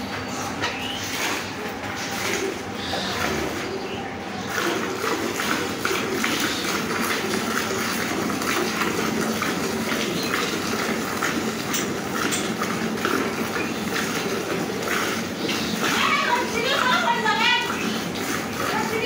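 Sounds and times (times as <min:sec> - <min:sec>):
milk squirting into bucket: 0:04.4 - 0:19.0.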